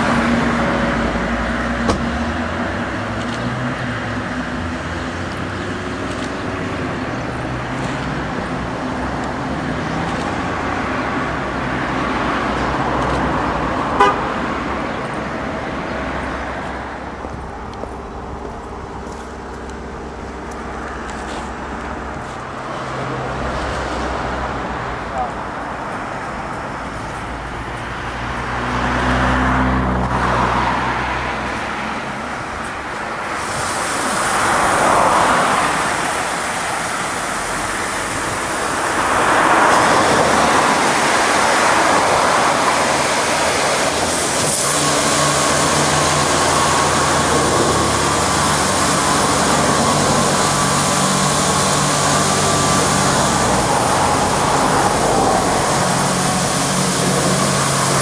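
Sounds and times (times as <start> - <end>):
water spray hissing: 33.2 - 58.0
pump and motors humming: 33.3 - 58.0.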